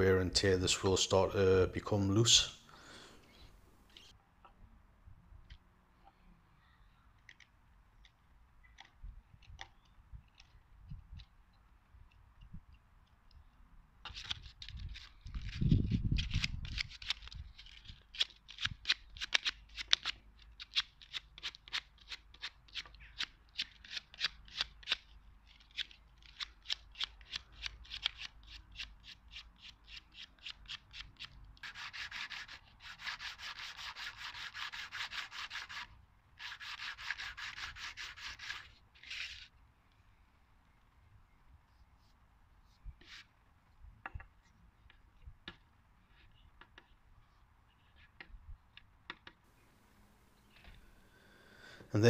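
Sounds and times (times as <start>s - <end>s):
sandpaper rubbing wood: 31.6s - 38.7s.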